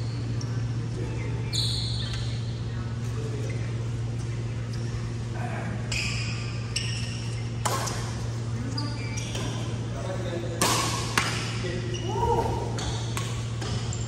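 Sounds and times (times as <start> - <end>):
steady low hum: 0.0 - 14.0
rackets hitting shuttlecock: 7.6 - 8.2, 10.5 - 11.7, 12.7 - 14.0.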